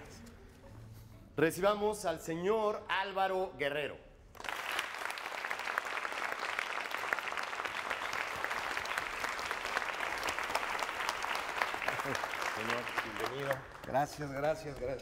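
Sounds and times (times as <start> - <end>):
crowd applause: 4.4 - 15.0.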